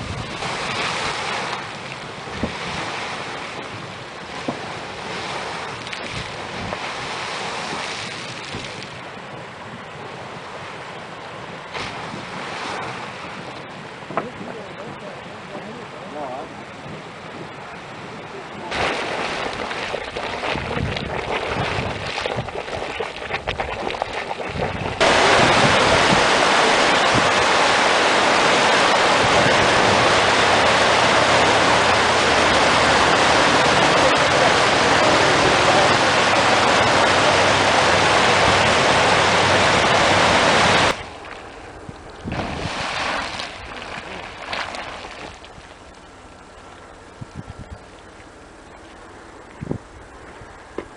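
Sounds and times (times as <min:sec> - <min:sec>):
hot spring boiling and splashing: 0:00.0 - 0:50.9
outdoor noise: 0:00.0 - 0:50.9
water cascading into river: 0:18.6 - 0:47.2.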